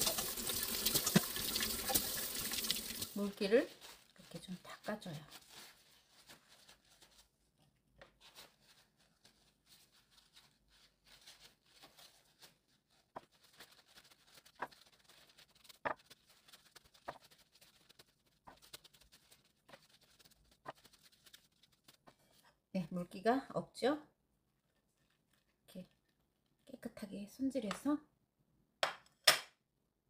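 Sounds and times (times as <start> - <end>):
paper towel rustling: 0.3 - 22.4.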